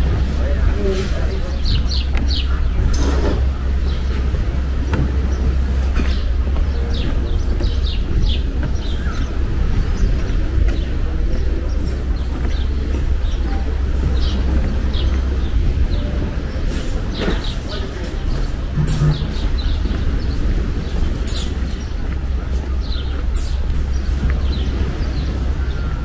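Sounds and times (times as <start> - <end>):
small birds chirping: 0.0 - 26.0
steady low rumble: 0.0 - 26.0.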